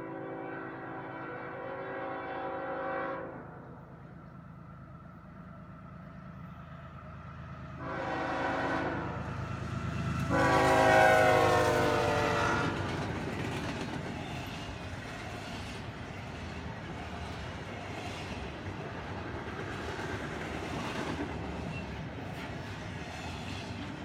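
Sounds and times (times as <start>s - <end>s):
train air horn: 0.0s - 3.8s, 7.8s - 9.4s, 10.2s - 13.0s.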